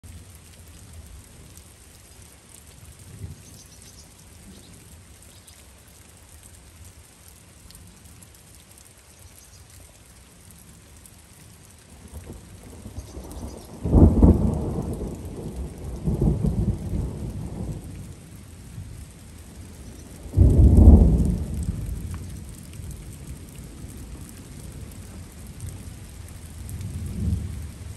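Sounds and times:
steady light rain: 0:00.0 - 0:27.9
thunder rumbling: 0:12.7 - 0:18.0, 0:20.2 - 0:25.8, 0:26.6 - 0:27.9.

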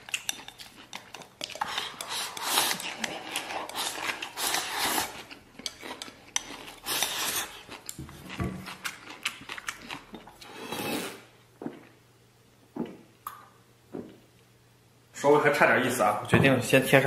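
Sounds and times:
chopsticks scraping a ceramic bowl: 0:00.0 - 0:07.8
close-up eating noises: 0:00.0 - 0:12.0.

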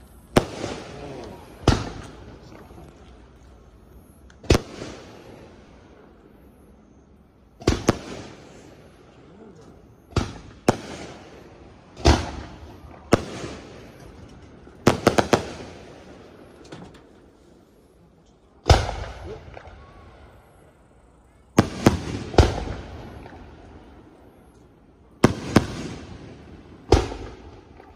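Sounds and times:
fireworks bursting: 0:00.0 - 0:17.9, 0:18.5 - 0:27.9.

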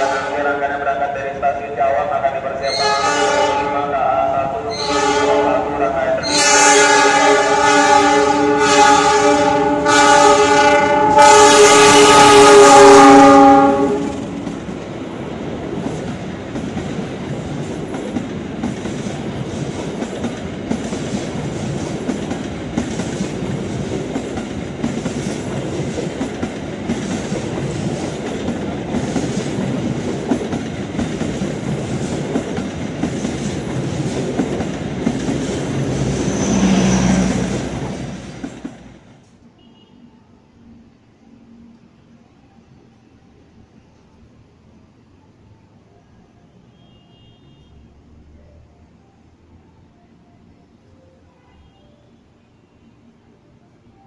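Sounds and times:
locomotive horn blasts: 0:00.0 - 0:00.6, 0:02.6 - 0:04.0, 0:04.7 - 0:14.4, 0:39.6 - 0:40.1, 0:46.7 - 0:47.8
train coaches rumbling: 0:00.0 - 0:39.3
wheels clacking over rail joints: 0:15.6 - 0:39.3.

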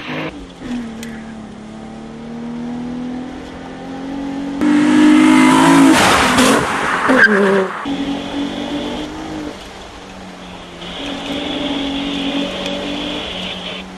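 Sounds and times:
car engine revving: 0:00.0 - 0:13.9.

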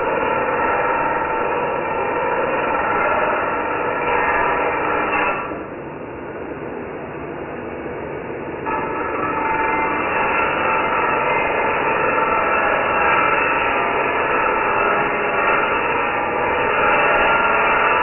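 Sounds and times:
angle grinder grinding steel: 0:08.7 - 0:18.0.

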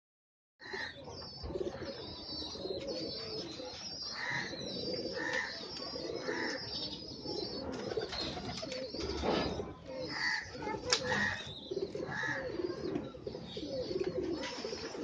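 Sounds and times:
birds chirping: 0:00.6 - 0:15.0
pigeons cooing: 0:00.6 - 0:15.0.

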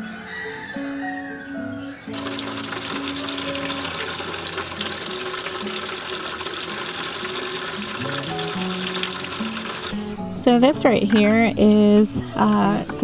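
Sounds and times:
background music: 0:00.0 - 0:13.0
liquid pouring into plastic bucket: 0:02.1 - 0:10.0.

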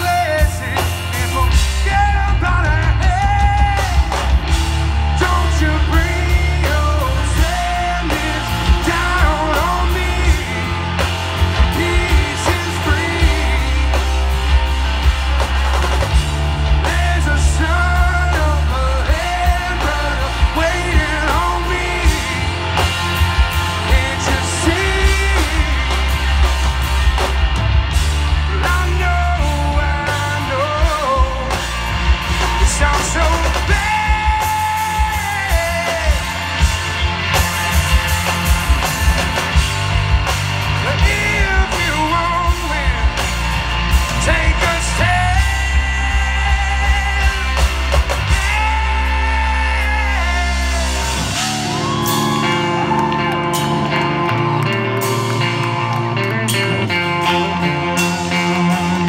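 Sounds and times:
man singing: 0:00.0 - 0:14.7, 0:16.7 - 0:26.2, 0:28.3 - 0:36.5, 0:40.8 - 0:43.4, 0:44.0 - 0:52.7, 0:57.0 - 0:59.0
hard rock band playing live: 0:00.0 - 0:59.0.

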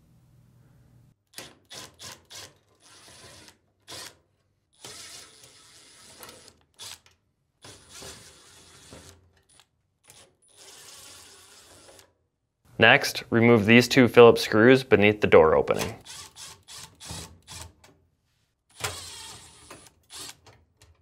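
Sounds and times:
power screwdriver whine: 0:04.8 - 0:07.0, 0:18.7 - 0:20.4.

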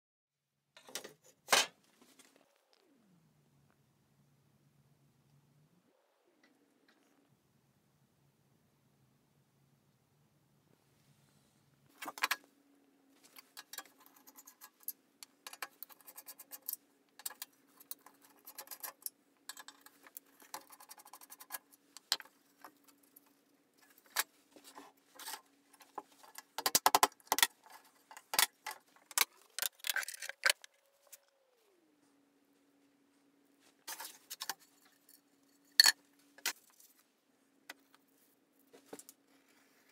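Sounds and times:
faint steady hum: 0:00.8 - 0:39.9
screwdriver clicks and scrapes: 0:13.3 - 0:31.2.

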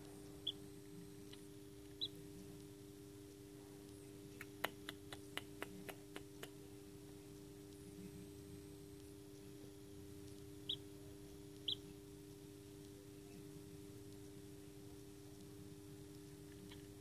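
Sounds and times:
steady low hum: 0:00.0 - 0:17.0
chick pecking at shell: 0:00.4 - 0:00.6, 0:01.2 - 0:02.7, 0:10.2 - 0:13.1
chick peeping: 0:00.4 - 0:00.6, 0:01.3 - 0:02.2, 0:10.6 - 0:12.0.

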